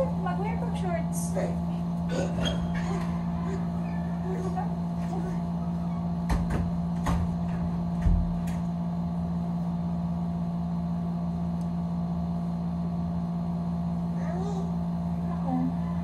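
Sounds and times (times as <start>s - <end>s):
low machine hum: 0.0s - 16.0s.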